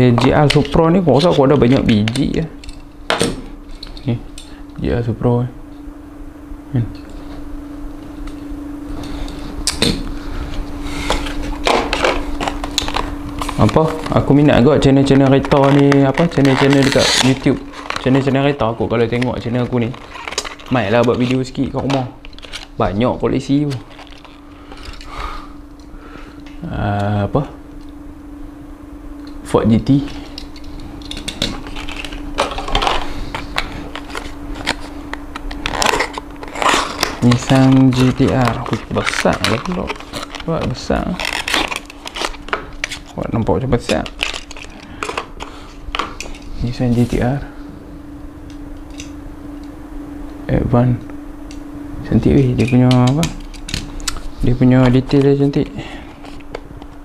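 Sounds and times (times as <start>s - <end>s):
steady hum: 0.0s - 57.0s
packaging rustling: 11.0s - 25.1s, 30.0s - 47.1s.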